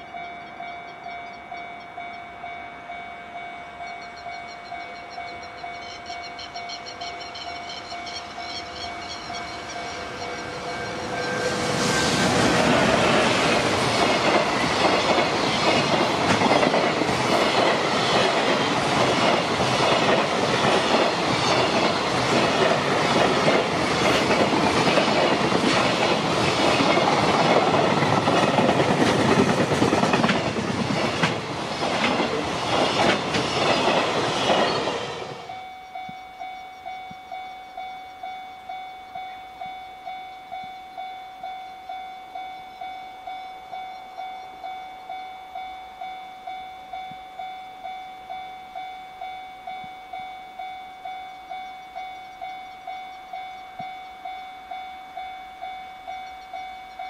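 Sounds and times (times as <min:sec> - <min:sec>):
level crossing alarm ringing: 0:00.0 - 0:34.0, 0:34.6 - 0:57.0
freight train wheels clattering: 0:04.9 - 0:36.1.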